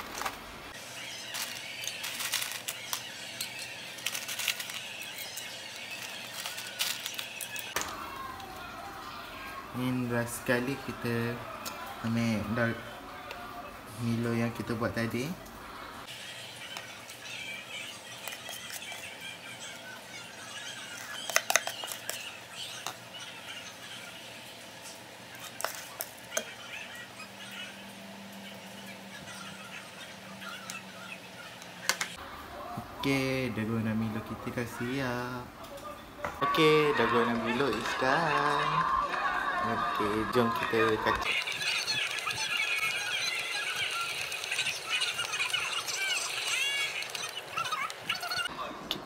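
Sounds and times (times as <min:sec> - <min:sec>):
ice cubes clinking in glass: 0:01.3 - 0:07.7.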